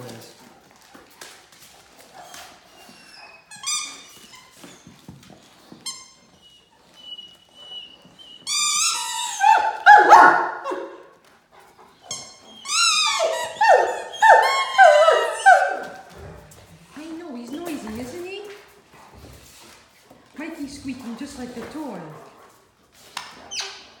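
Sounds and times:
dog toy squeaking: 3.0 - 4.9, 5.8 - 10.1, 12.1 - 16.0.

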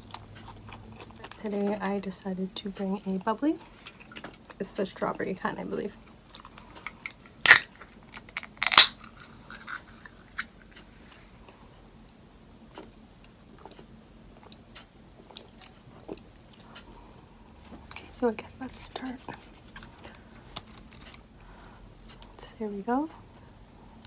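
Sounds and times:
can opening crack with fizz: 7.4 - 7.7, 8.3 - 9.0.

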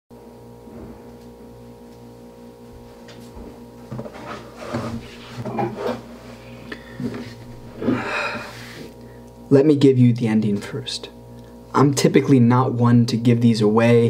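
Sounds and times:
low electrical hum: 0.2 - 14.0
knocks and rustling near microphone: 3.0 - 6.0.

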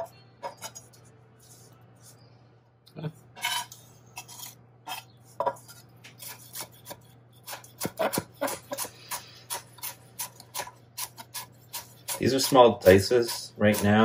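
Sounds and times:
knife chopping on wooden board: 6.2 - 12.2.

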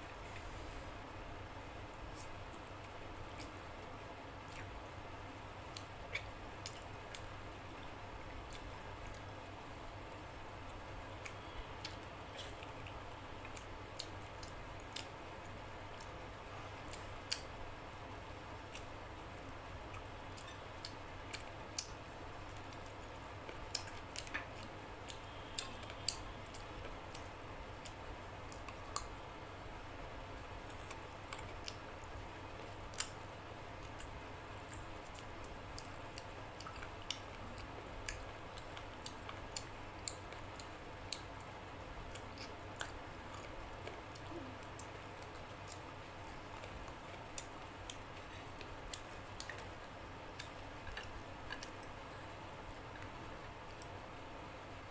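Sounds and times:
steady low hum: 0.0 - 54.9
chewing clicks and smacks: 4.4 - 4.8, 5.7 - 7.3, 10.0 - 16.2, 16.8 - 17.6, 18.6 - 29.2, 30.6 - 33.2, 33.8 - 54.1.

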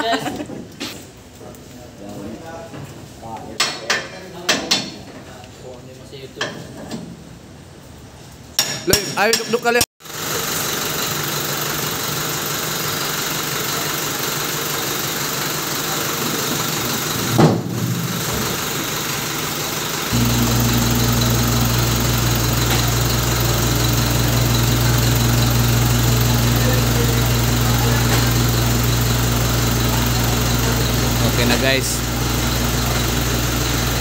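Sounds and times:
truck engine idling: 10.2 - 34.0
deep steady hum: 20.1 - 34.0.

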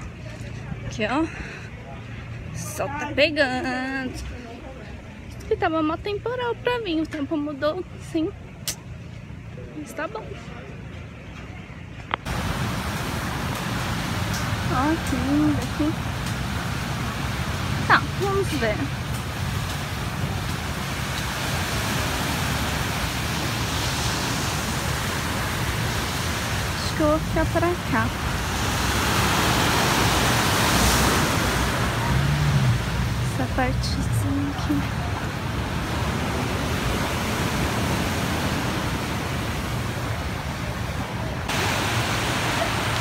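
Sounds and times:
surf breaking on beach: 19.4 - 33.5, 35.2 - 43.0.

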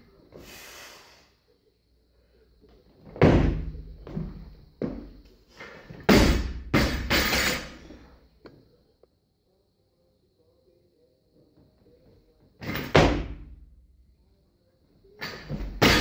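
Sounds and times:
barbell dropped banging on floor: 6.0 - 7.9, 15.2 - 16.0
barbell thud with rattling plates: 6.1 - 7.8, 15.3 - 16.0.

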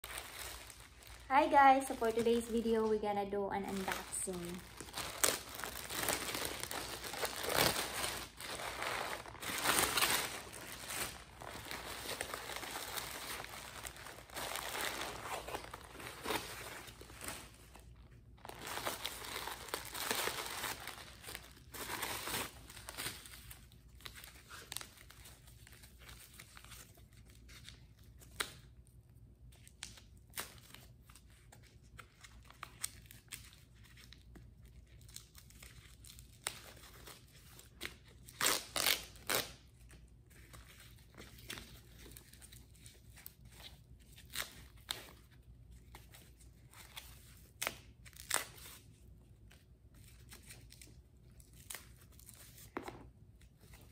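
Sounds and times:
plastic and paper crinkling: 0.0 - 28.1.

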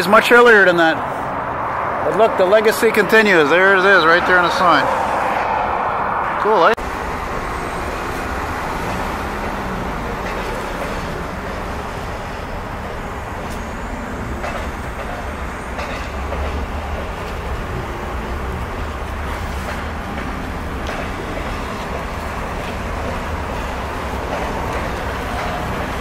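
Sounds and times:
bus passing: 0.0 - 26.0
street traffic: 0.0 - 26.0
train rumbling over overpass: 0.0 - 26.0.

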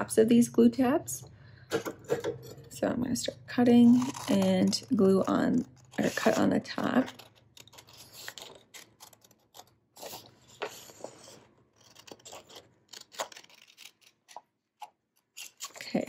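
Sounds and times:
scissors snipping paper: 3.7 - 16.0.

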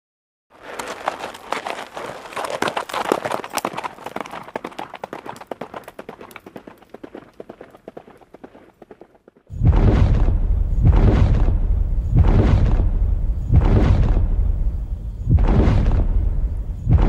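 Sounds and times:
horse hoofbeats galloping: 0.5 - 9.5.

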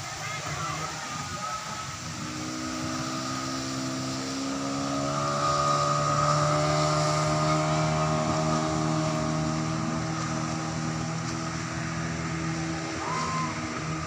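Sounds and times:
motorboat engine humming: 0.0 - 14.0.

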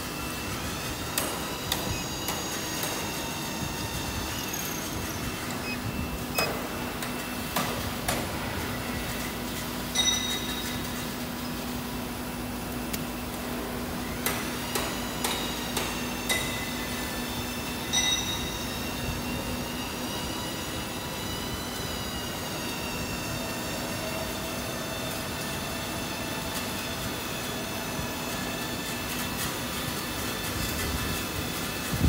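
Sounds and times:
machine humming and whining: 0.0 - 32.0.

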